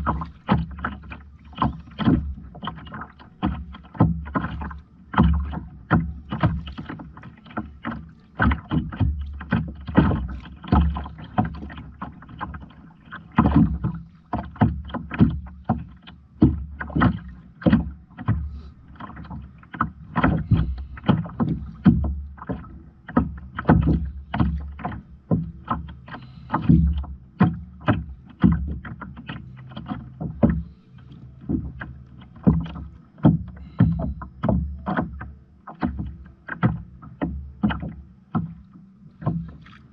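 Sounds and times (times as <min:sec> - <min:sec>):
low steady hum: 0:00.0 - 0:39.9
water splashing against kayak hull: 0:00.0 - 0:39.9.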